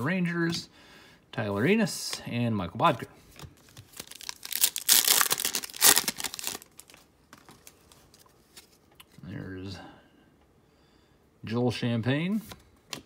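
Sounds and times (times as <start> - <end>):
cards being handled: 3.3 - 9.2
card wrapper tearing and crinkling: 3.6 - 8.2.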